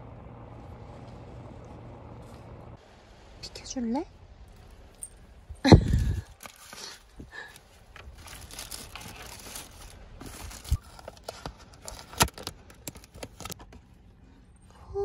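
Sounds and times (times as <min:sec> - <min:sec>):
plastic bag crinkling: 0:05.8 - 0:13.6.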